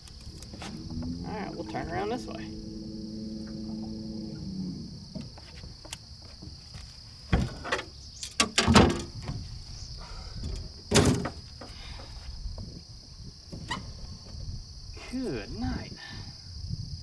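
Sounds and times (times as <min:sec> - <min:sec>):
low motor hum: 0:00.0 - 0:05.9
marsh insects droning: 0:00.0 - 0:17.0
sharp knocks and thumps: 0:05.0 - 0:09.4.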